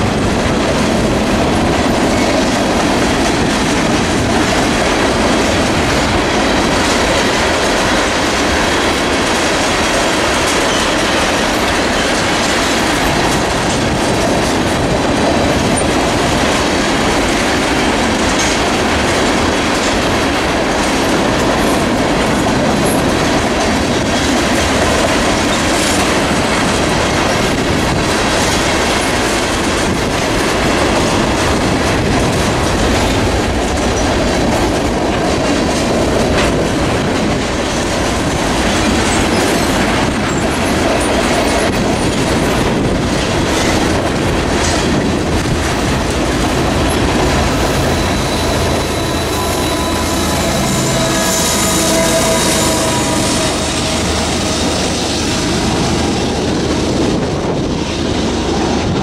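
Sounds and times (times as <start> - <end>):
freight train rumbling by: 0.0 - 59.0
wheels clicking over rail joints: 0.0 - 59.0
high wheel squeal: 47.3 - 56.6.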